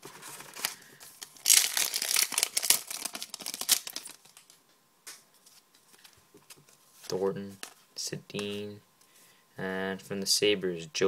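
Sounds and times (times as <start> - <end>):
cards being handled: 0.0 - 8.7
wrapper tearing and crinkling: 0.1 - 4.6.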